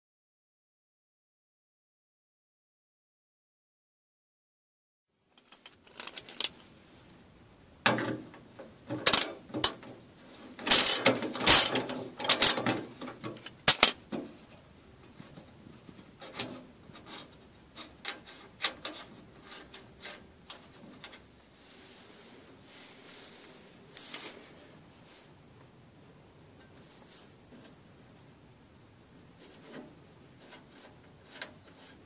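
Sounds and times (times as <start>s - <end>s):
metal knocks and scrapes: 5.4s - 6.6s
ratchet spanner clicking: 10.7s - 12.6s.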